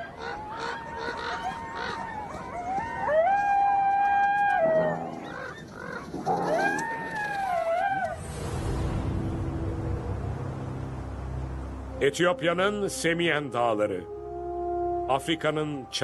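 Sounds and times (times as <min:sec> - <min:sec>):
coyote howling and yipping: 0:00.0 - 0:08.3.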